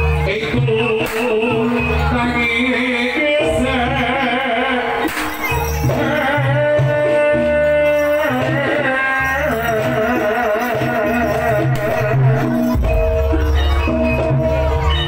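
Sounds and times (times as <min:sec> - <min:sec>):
high wavering melody: 0:01.6 - 0:15.0
deep drum beat: 0:05.8 - 0:14.8.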